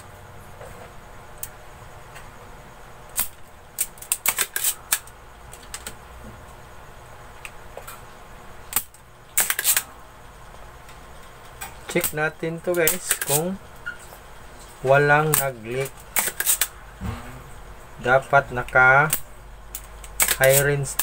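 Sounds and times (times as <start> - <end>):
desoldering pump snaps and clicks: 3.1 - 6.0, 8.7 - 9.8, 11.5 - 13.5, 15.3 - 16.7, 18.6 - 21.0.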